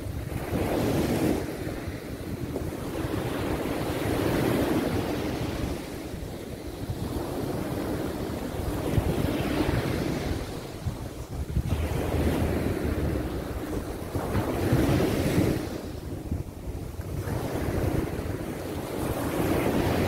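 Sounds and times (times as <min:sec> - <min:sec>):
waves breaking on sandy beach: 0:00.0 - 0:20.0
wind rumble on microphone: 0:00.0 - 0:20.0.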